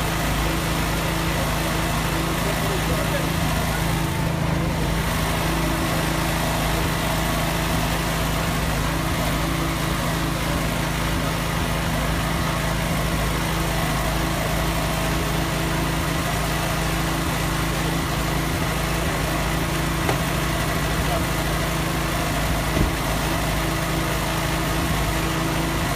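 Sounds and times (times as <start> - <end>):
small engine running: 0.0 - 25.9.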